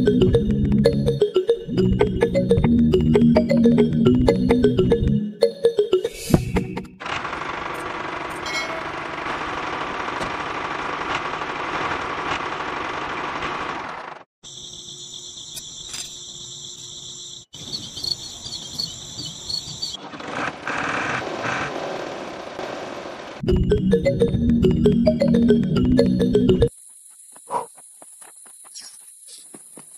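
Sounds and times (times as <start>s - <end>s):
crickets chirping: 14.4s - 20.0s.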